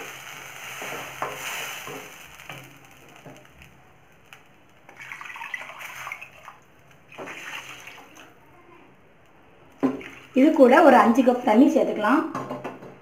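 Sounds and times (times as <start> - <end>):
paste sizzling in hot oil: 0.0 - 8.4, 9.8 - 10.8.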